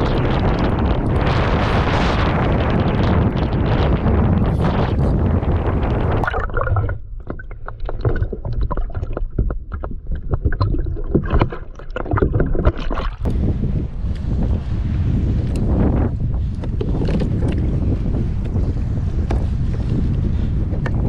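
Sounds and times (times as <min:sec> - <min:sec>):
water gurgling: 0:00.0 - 0:14.6
water slapping against kayak hull: 0:00.0 - 0:21.0
wind buffeting microphone: 0:00.0 - 0:21.0.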